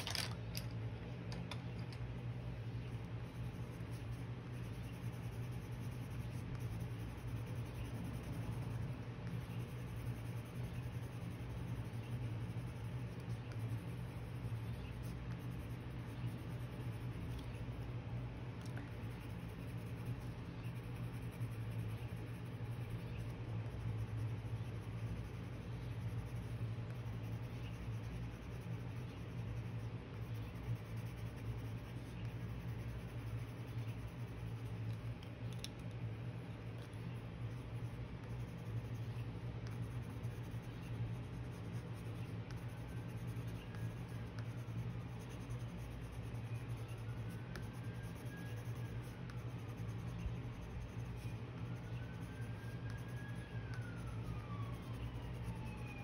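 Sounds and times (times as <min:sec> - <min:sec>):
steady low hum: 0:00.0 - 0:56.0
pencil scratching on paper: 0:02.8 - 0:18.0, 0:18.6 - 0:35.9, 0:36.5 - 0:56.0.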